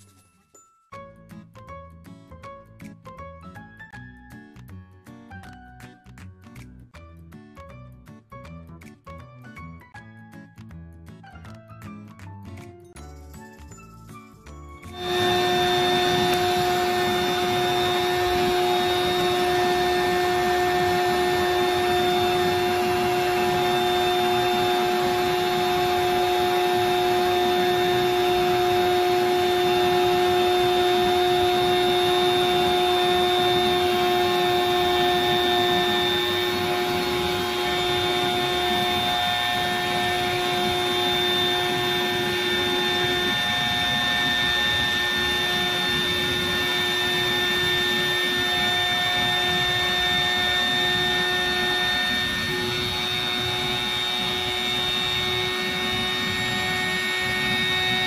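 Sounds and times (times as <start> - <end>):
electric air pump whirring: 14.9 - 58.0.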